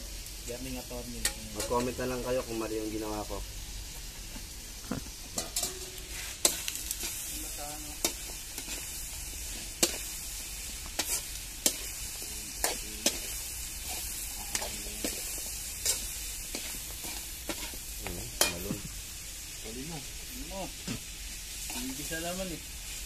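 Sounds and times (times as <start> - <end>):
chicken feet sizzling in a wok: 0.0 - 23.0
metal spoon clinking on pan: 5.4 - 6.6.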